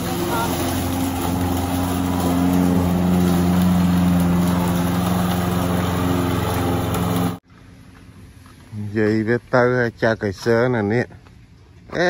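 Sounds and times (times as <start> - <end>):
lawn mower engine running: 0.0 - 7.4.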